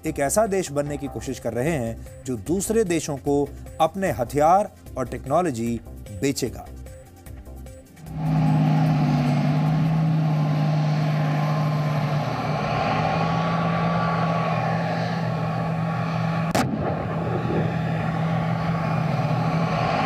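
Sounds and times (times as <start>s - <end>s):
low hum: 7.9s - 20.0s
steady rumbling: 7.9s - 20.0s
sharp crack: 16.2s - 20.0s.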